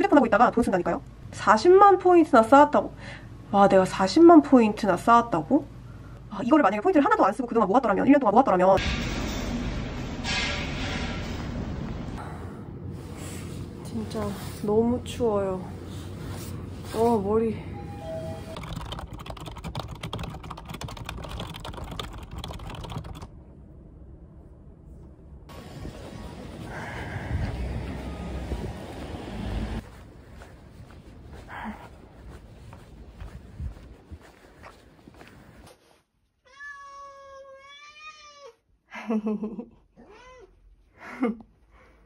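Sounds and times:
dull low rumble: 23.2s - 35.3s
cat meowing: 36.5s - 38.6s.

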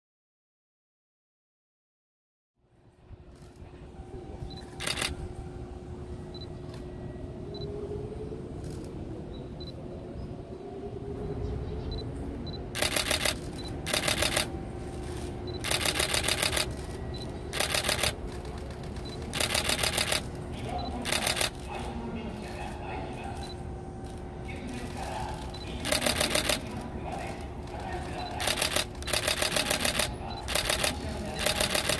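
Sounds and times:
camera shutters firing in bursts: 4.8s - 5.1s, 12.8s - 20.3s, 21.0s - 21.6s, 24.8s - 31.9s.

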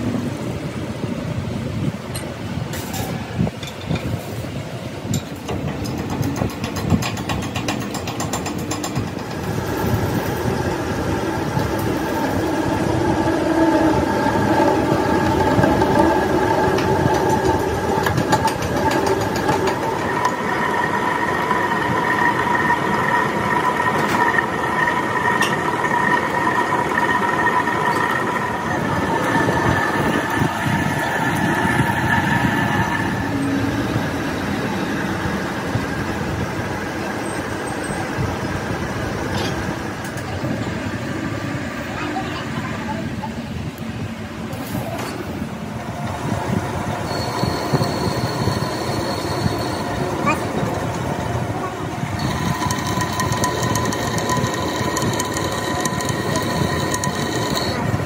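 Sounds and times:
machine whine: 8.2s - 36.5s, 45.0s - 58.0s
machine running: 8.5s - 35.5s, 45.9s - 58.0s.

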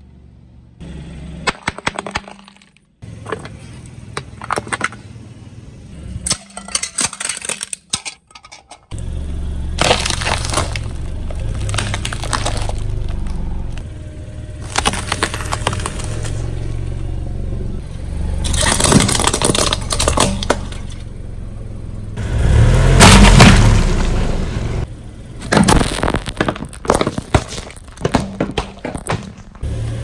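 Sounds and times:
plastic cracking and snapping: 9.8s - 12.9s
loud low thump and crunch: 9.8s - 13.9s, 14.6s - 16.6s, 23.0s - 24.2s, 25.4s - 29.7s.

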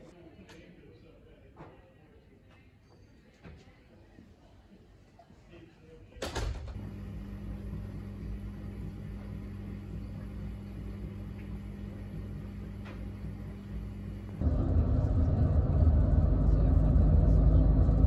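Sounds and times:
low mechanical hum and rumble: 6.2s - 18.0s.

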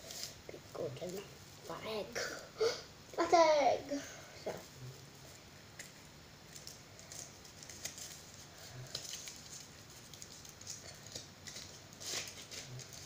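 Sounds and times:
chocolate egg crinkling: 5.2s - 13.0s.

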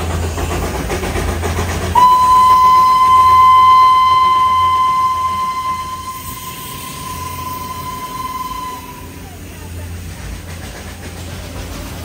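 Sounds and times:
low rumble of moving train: 0.0s - 12.0s
steam locomotive whistle blast: 2.0s - 9.5s.

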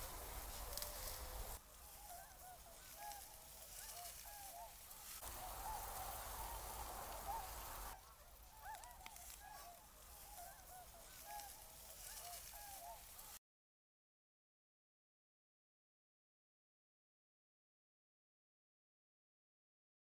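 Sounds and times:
steady hiss: 0.0s - 1.9s, 4.8s - 8.0s
swans calling: 0.0s - 13.4s.

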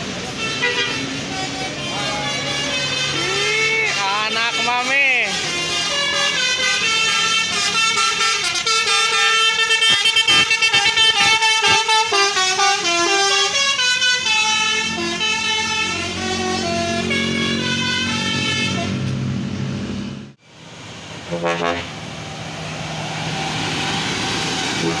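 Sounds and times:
bus engine rumble: 0.0s - 25.0s
musical air horn playing tune: 0.3s - 19.0s, 21.3s - 22.0s.

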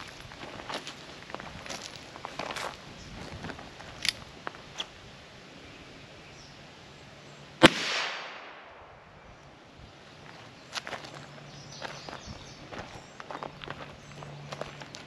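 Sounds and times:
revolver gunshot with echo: 7.6s - 9.1s.

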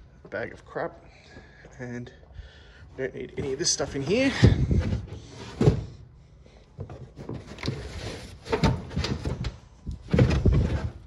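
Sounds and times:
items rustling and knocking: 3.2s - 11.0s.

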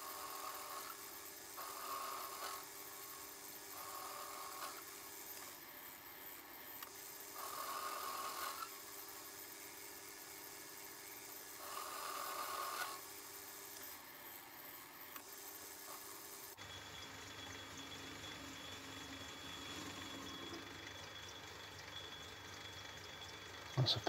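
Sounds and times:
rasping metal cutting: 0.0s - 4.9s
metal lathe humming: 0.0s - 23.8s.

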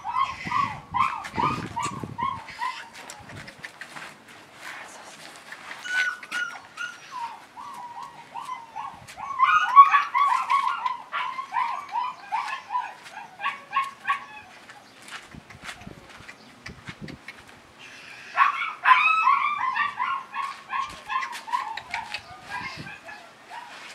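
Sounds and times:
puppy yipping and whining: 0.0s - 3.2s, 5.8s - 14.7s, 18.3s - 23.9s.

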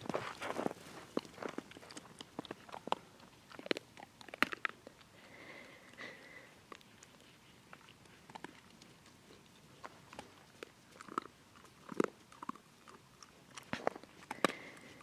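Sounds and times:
footsteps crunching on snow: 0.0s - 1.6s.

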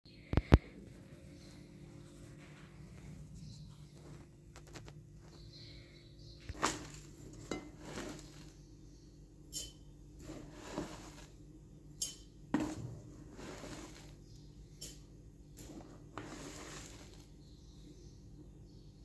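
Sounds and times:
kitchenware clinking on glass bowl: 9.5s - 9.8s, 12.0s - 12.8s.

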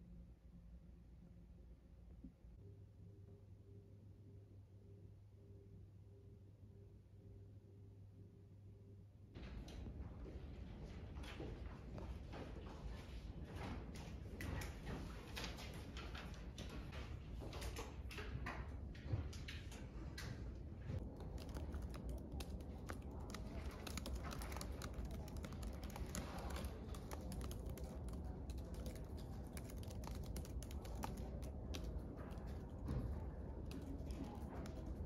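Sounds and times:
laptop keyboard typing: 21.0s - 35.0s.

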